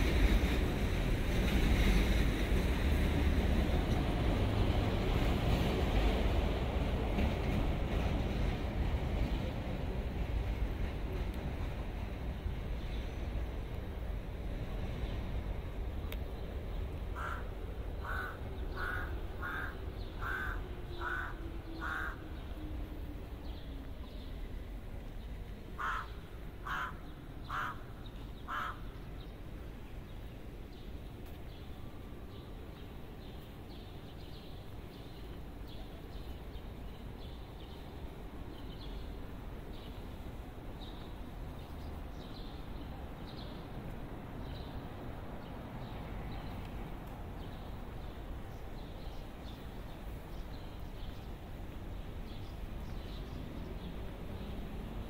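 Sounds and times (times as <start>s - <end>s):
low city rumble: 0.0s - 55.0s
crow cawing: 17.2s - 22.2s, 25.8s - 27.9s, 28.5s - 28.9s.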